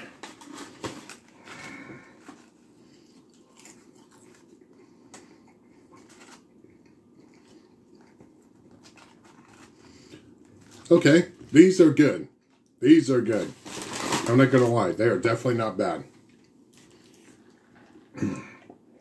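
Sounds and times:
low room hum: 0:00.0 - 0:19.0
faint chewing: 0:02.1 - 0:10.8, 0:16.2 - 0:18.8
paper bag rustling: 0:13.2 - 0:15.0.

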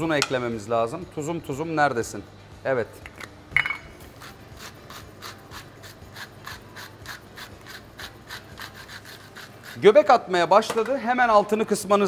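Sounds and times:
salt mill grinding: 0:04.1 - 0:09.9.

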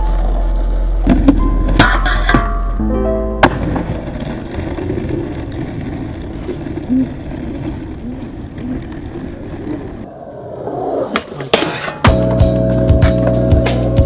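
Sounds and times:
skateboard wheels rolling on asphalt: 0:00.0 - 0:14.0
outdoor rumble: 0:03.5 - 0:11.6.

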